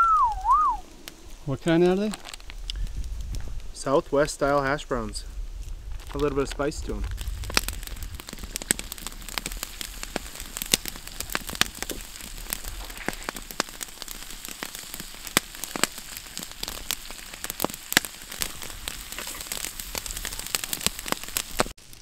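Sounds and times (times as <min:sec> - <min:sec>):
sharp pops and crackles: 0:00.0 - 0:22.0
food sizzling in a pan: 0:07.2 - 0:22.0.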